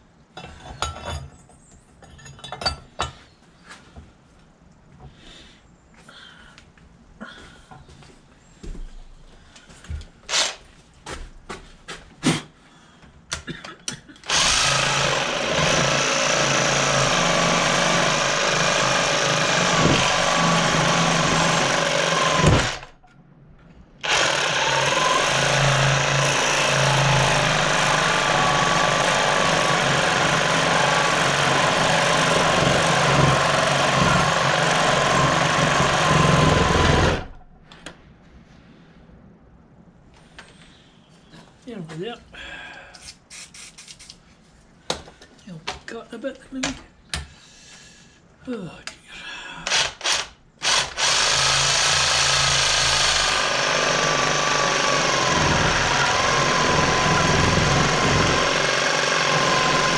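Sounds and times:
reciprocating saw cutting: 14.3 - 23.0, 24.0 - 37.4, 49.7 - 59.9.

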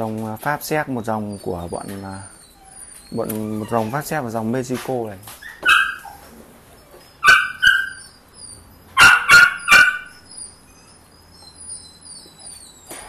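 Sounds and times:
puppy yelping barks: 5.3 - 13.0.

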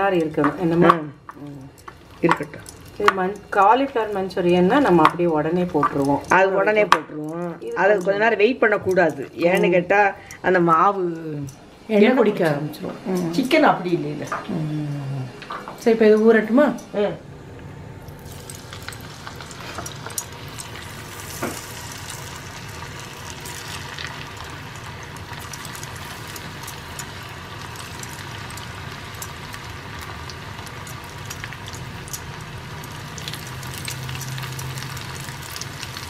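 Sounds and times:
chicken deep-frying in oil: 18.2 - 36.0.

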